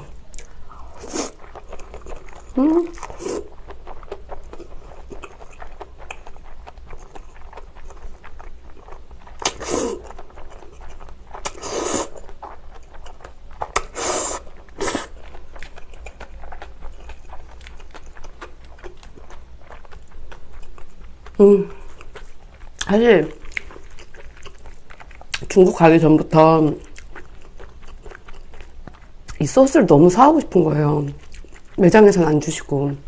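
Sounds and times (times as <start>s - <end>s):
chewing with wet mouth clicks: 0.0s - 29.5s, 31.0s - 32.2s
loud noodle slurps: 0.9s - 1.5s, 3.0s - 3.5s, 9.4s - 10.1s, 11.4s - 12.2s, 13.8s - 15.2s.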